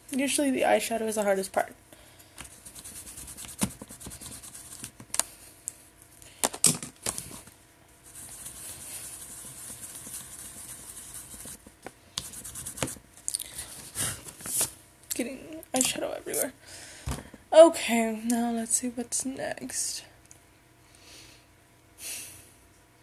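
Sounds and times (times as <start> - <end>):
brush tapping palette: 2.4 - 5.0, 8.1 - 13.0
makeup brush rubbing eyeshadow: 2.5 - 4.9, 8.0 - 13.0.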